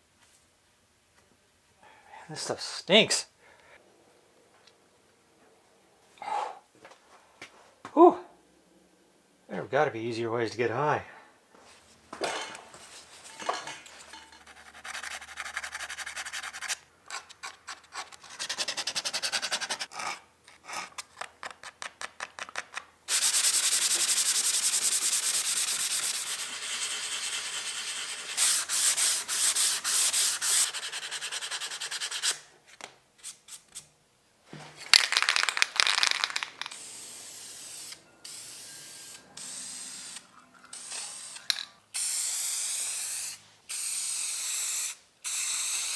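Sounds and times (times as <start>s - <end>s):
sandpaper rubbing back and forth: 14.5s - 16.8s, 17.4s - 19.9s, 23.1s - 32.4s.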